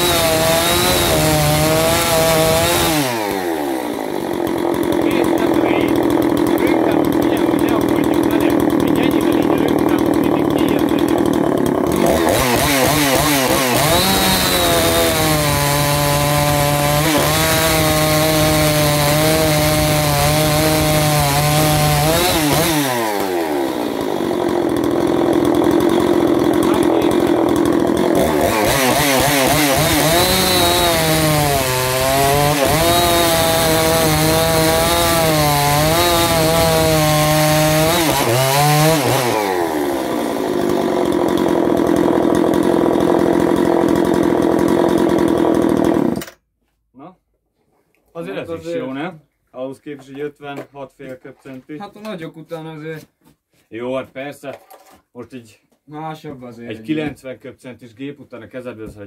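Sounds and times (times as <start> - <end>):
chainsaw cutting through log: 0.0 - 46.4.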